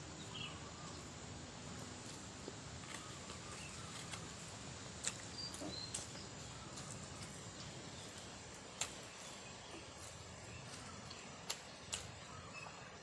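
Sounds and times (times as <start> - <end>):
quiet forest background noise: 0.0 - 13.0.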